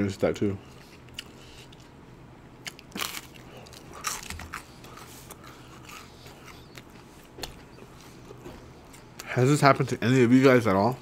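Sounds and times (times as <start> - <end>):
crunching fried food: 2.6 - 9.2.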